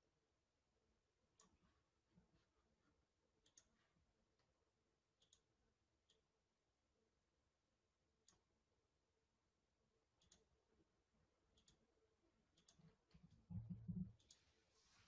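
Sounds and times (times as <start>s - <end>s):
computer mouse clicks: 1.4s - 1.6s, 3.4s - 3.8s, 5.2s - 5.5s, 10.2s - 10.5s, 11.6s - 11.8s, 12.5s - 14.4s.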